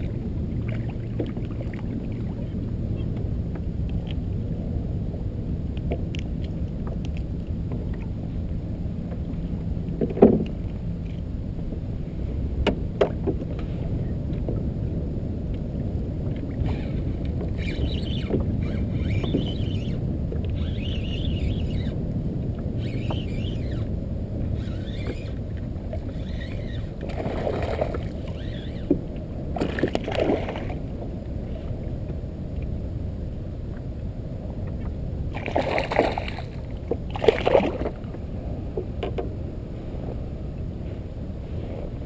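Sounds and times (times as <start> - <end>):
small waves lapping on kayak hull: 0.0 - 4.4, 16.2 - 32.7, 33.7 - 42.0.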